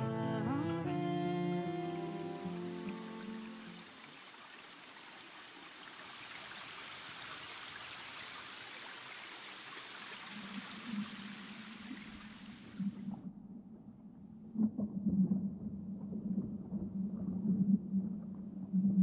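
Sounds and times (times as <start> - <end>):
water trickling over stones: 2.0 - 13.1.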